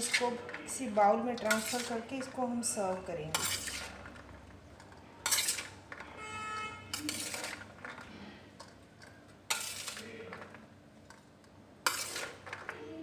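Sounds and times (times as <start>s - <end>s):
spoon scraping steel plate: 0.0s - 2.3s, 3.2s - 4.1s, 5.2s - 6.0s, 6.6s - 8.0s, 9.5s - 10.2s, 11.8s - 12.7s.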